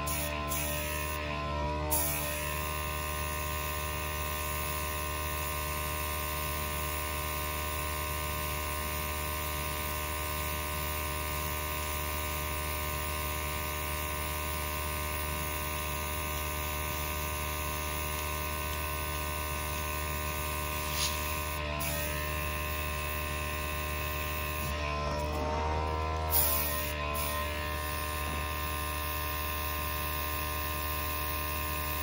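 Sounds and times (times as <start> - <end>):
electrical hum: 0.0 - 32.0.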